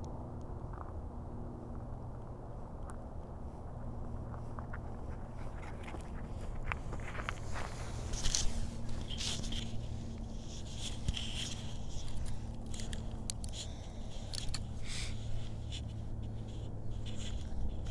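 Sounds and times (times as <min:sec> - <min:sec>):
faint low hum: 0:00.0 - 0:17.9
cardboard rustling and scraping: 0:06.8 - 0:17.9.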